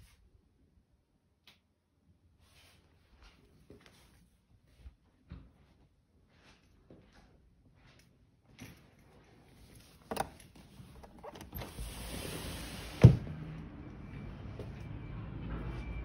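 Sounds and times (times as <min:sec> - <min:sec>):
sliding glass door rolling open: 0:11.0 - 0:14.5.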